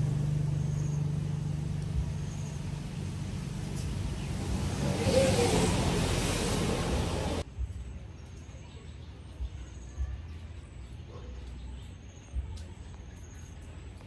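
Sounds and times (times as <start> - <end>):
loud rushing noise: 2.7 - 7.4.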